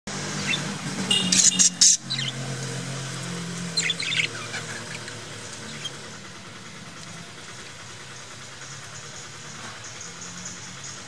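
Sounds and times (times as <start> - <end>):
budgerigars chirping: 0.3 - 2.6, 3.2 - 6.2.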